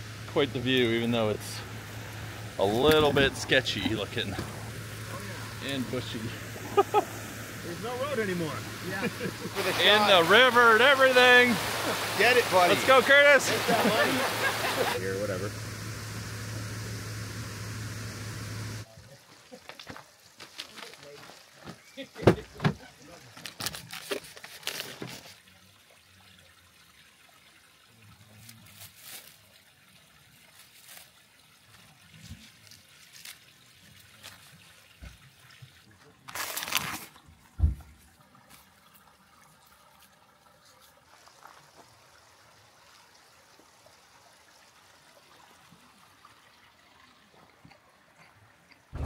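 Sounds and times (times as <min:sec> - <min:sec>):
plastic packaging rustling: 0:36.3 - 0:37.2.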